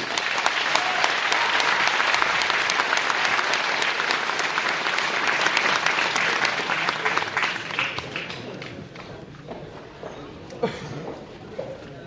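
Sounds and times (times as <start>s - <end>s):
large audience applauding: 0.0s - 8.9s.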